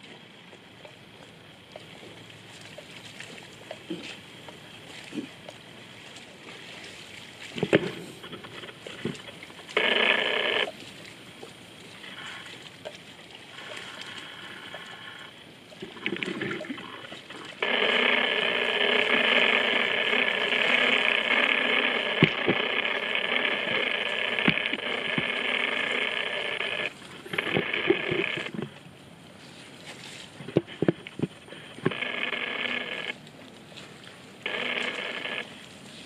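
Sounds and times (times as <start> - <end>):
insects trilling: 7.1 - 28.7, 31.1 - 33.2, 34.4 - 35.6.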